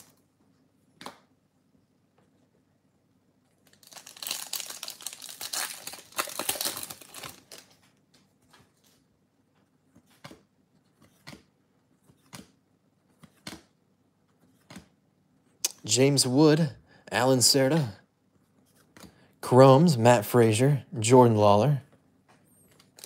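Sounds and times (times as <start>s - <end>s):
foil wrapper tearing and crinkling: 3.6s - 7.7s.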